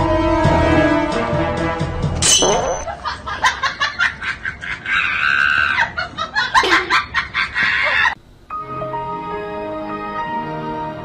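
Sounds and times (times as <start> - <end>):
person laughing in bursts: 2.9 - 8.2.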